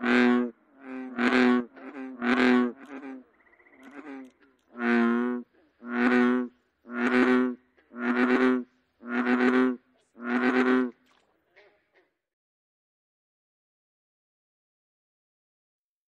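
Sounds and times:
bullfrog croaking: 0.0s - 11.8s.

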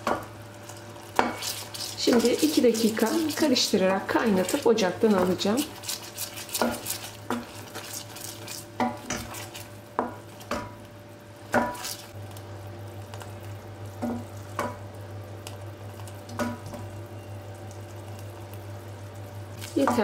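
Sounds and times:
bubbling caramel sizzle: 0.0s - 20.0s
wooden spoon knocking and scraping pot: 1.2s - 10.8s.

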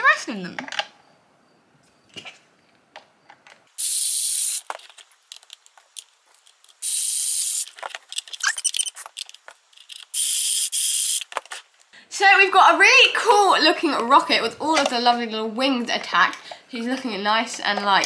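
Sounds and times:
plastic parts clicking: 4.6s - 6.8s, 7.6s - 10.2s
toy drill whirring: 6.8s - 9.3s, 9.9s - 11.3s.

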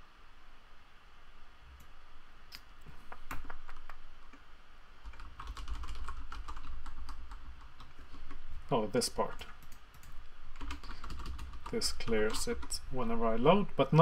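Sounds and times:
computer keyboard typing: 3.1s - 4.4s, 5.0s - 8.6s, 9.2s - 12.9s.

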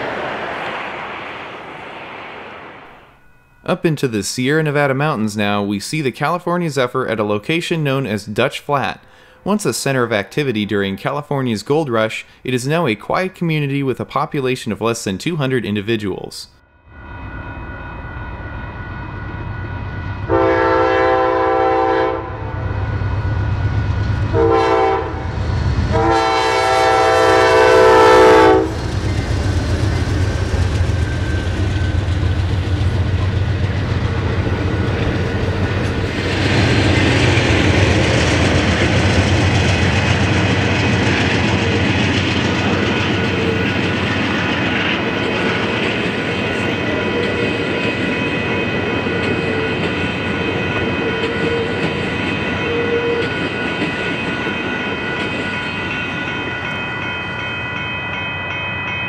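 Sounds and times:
locomotive engine rumble: 17.2s - 57.3s
locomotive air horn blasts: 20.3s - 22.5s, 24.3s - 25.3s, 25.9s - 28.8s
train wheels clacking on rail joints: 28.1s - 56.8s.

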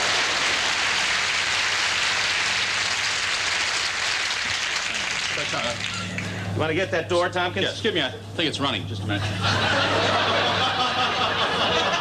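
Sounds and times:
audience laughing and applauding: 0.0s - 6.0s, 9.2s - 12.0s
steady low hum: 0.0s - 12.0s.

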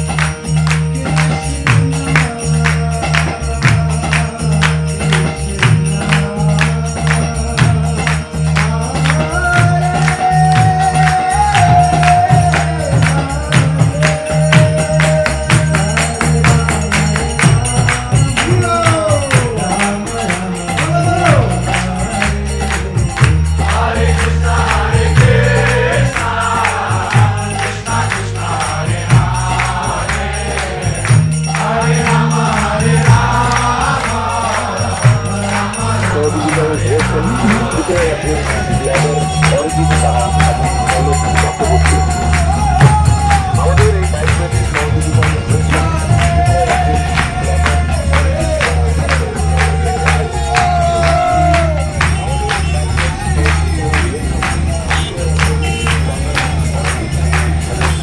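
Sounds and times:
jingling percussion beat: 0.0s - 58.0s
group of voices singing a chant: 23.6s - 44.2s, 44.8s - 55.2s
deep bass: 32.2s - 58.0s.

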